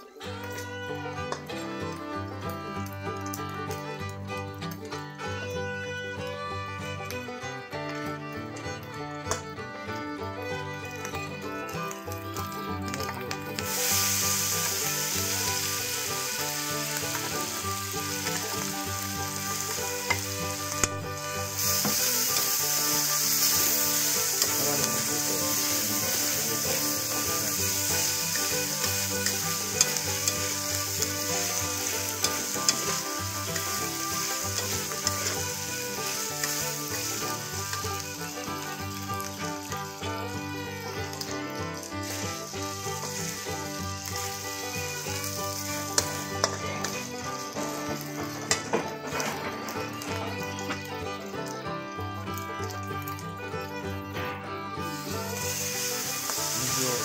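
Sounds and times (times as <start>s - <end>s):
food sizzling in hot oil: 0.0s - 5.4s, 7.9s - 57.0s
metal spatula clicking on wok: 19.3s - 20.9s, 27.8s - 37.1s, 46.0s - 46.6s.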